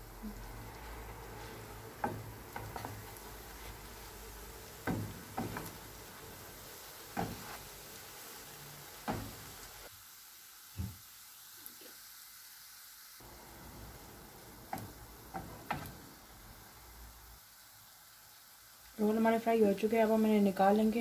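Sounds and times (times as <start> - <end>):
bread frying in oil: 0.0 - 21.0
plastic spoon knocking on pan: 4.8 - 5.9.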